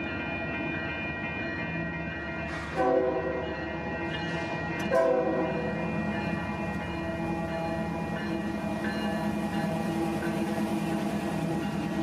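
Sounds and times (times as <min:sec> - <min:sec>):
train running: 0:00.0 - 0:12.0
locomotive air horn blasts: 0:02.8 - 0:03.4, 0:04.9 - 0:05.5.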